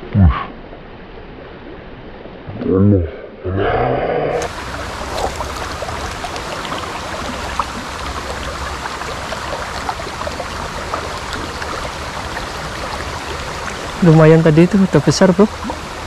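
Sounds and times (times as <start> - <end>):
river water rushing over stones: 4.4 - 16.0.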